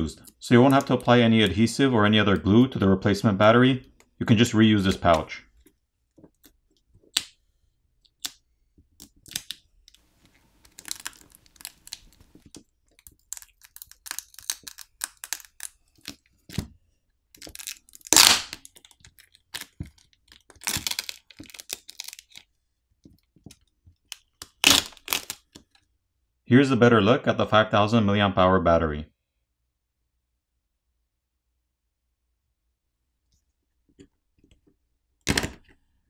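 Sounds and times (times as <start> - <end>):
plastic film crackling and crinkling: 0.4 - 1.6, 8.1 - 16.7, 17.3 - 25.8.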